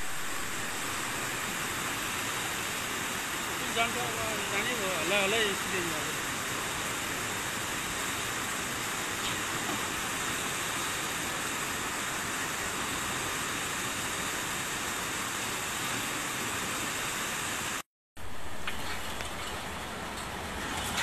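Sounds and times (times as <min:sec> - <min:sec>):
flooded river rushing: 0:00.0 - 0:21.0.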